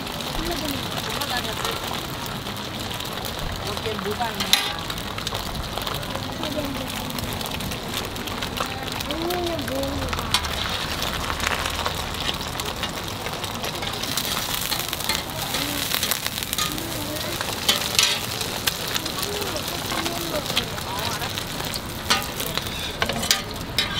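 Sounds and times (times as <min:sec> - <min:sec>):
egg sizzling on a griddle: 0:00.0 - 0:23.9
metal spatula scraping a griddle: 0:13.8 - 0:18.4, 0:22.0 - 0:23.9.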